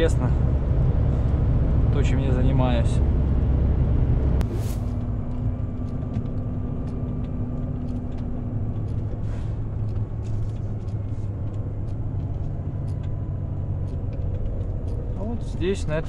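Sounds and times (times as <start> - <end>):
diesel truck engine running: 0.0 - 16.0
faint ticks: 5.3 - 15.2.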